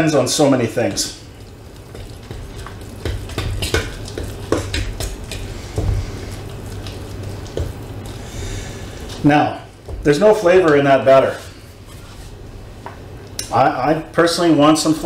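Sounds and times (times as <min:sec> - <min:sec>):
utensil stirring batter in metal bowl: 0:00.6 - 0:10.6.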